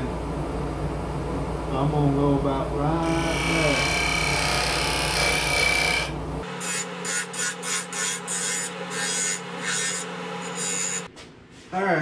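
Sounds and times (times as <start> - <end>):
lathe motor humming: 3.0 - 7.1
lathe gouge cutting wood: 3.0 - 11.1.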